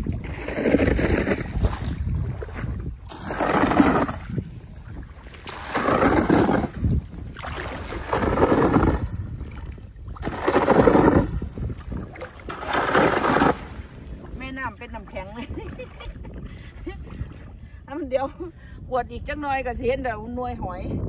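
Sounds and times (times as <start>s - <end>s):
boots sloshing through water: 0.0s - 14.4s.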